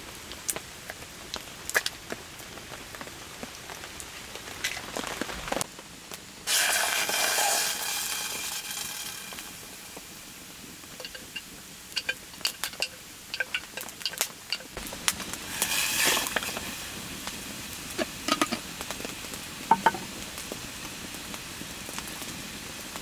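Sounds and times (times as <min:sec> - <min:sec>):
food sizzling in a pan: 0:06.4 - 0:23.0
sharp clicks and clinks: 0:11.0 - 0:11.4, 0:12.0 - 0:14.8.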